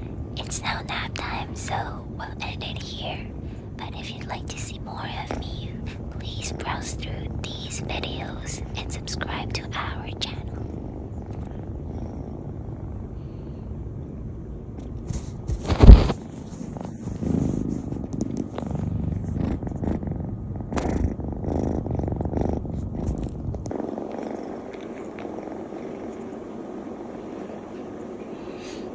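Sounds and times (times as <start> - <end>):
kitten purring: 0.0 - 28.9.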